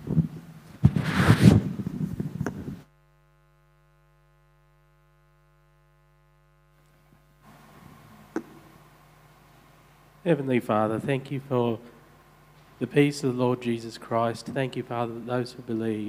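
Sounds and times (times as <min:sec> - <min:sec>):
microphone handling rustling: 0:00.0 - 0:02.9
steady electrical hum: 0:00.0 - 0:16.0.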